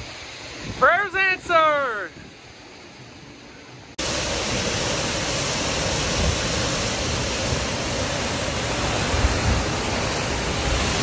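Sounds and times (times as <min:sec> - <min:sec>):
heavy rain downpour: 0:00.0 - 0:11.0
wind buffeting microphone: 0:06.0 - 0:11.0.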